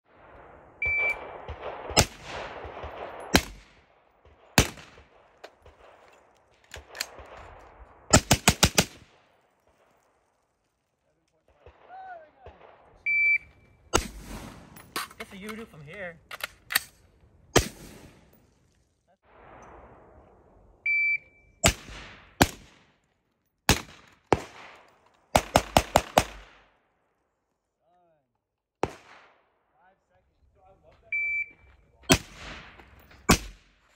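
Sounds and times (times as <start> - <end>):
gunshots with echo: 0.1 - 6.0
rifle gunshots: 0.1 - 10.0, 11.5 - 13.3, 13.9 - 14.8, 17.5 - 18.3, 21.6 - 22.9, 23.7 - 26.7, 28.8 - 29.4, 32.1 - 33.8.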